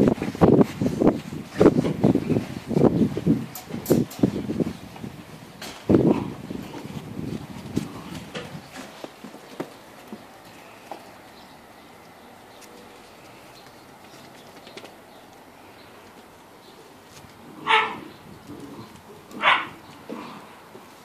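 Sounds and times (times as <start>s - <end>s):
puppies barking: 17.4s - 20.6s.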